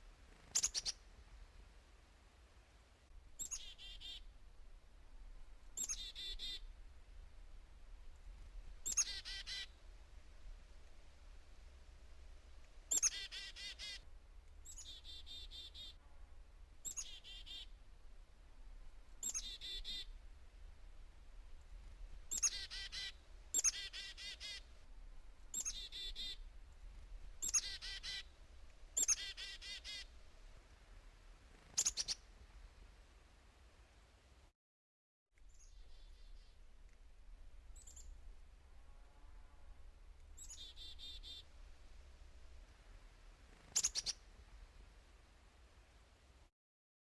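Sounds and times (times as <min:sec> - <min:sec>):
chickadee calls: 0:00.4 - 0:01.0, 0:03.4 - 0:04.4, 0:05.8 - 0:06.7, 0:08.8 - 0:09.8, 0:12.9 - 0:16.0, 0:16.8 - 0:17.8, 0:19.2 - 0:20.2, 0:22.3 - 0:24.7, 0:25.5 - 0:26.5, 0:27.4 - 0:28.4, 0:29.0 - 0:30.1, 0:31.6 - 0:32.2, 0:40.4 - 0:41.5, 0:43.5 - 0:44.2.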